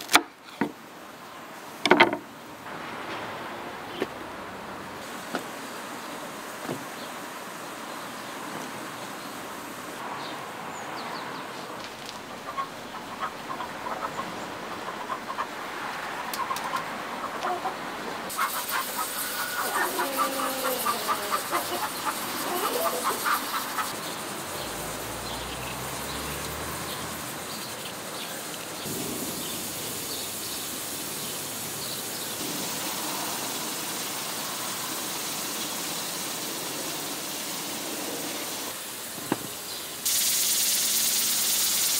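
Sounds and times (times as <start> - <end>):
chickens clucking: 12.0 - 25.3.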